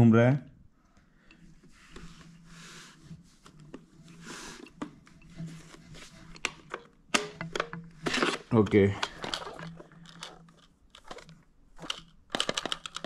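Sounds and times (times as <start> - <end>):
hands rubbing plastic casing: 8.1 - 13.0.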